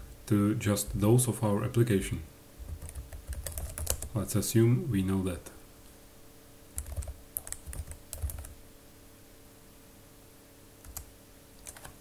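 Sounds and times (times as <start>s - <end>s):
keyboard typing: 2.7s - 4.1s, 6.8s - 8.6s, 10.8s - 12.0s.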